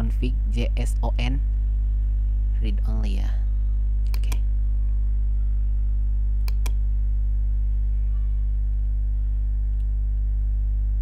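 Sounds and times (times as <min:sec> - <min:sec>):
electrical mains hum: 0:00.0 - 0:11.0
mouse clicks: 0:04.1 - 0:04.4, 0:06.4 - 0:06.8.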